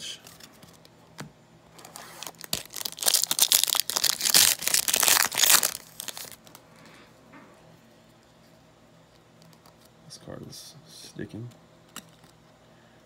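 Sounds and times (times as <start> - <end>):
wrapper tearing and crinkling: 1.8 - 6.6.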